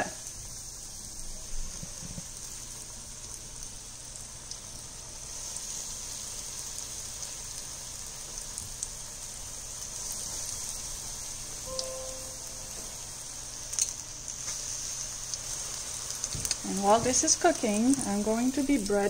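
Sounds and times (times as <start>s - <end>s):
fish frying in hot oil: 0.0s - 19.0s.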